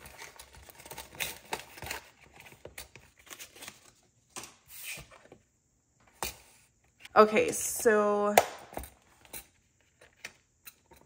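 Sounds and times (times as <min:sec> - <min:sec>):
paper and plastic crinkling: 0:00.0 - 0:04.5.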